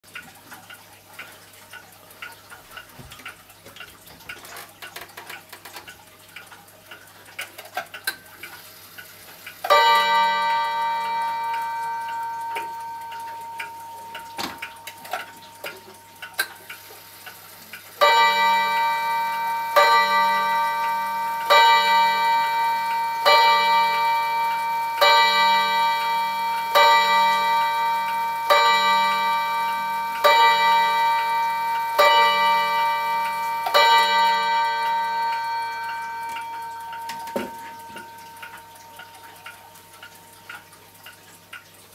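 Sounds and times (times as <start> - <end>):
wall clock ticking: 0.1 - 41.9
clock striking the hour: 9.5 - 40.6
clock chime ringing: 9.7 - 16.8, 18.0 - 40.0.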